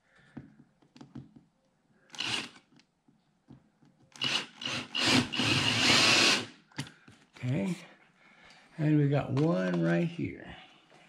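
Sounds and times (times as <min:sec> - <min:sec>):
cordless drill driving screw: 0:02.1 - 0:02.7, 0:04.1 - 0:06.6.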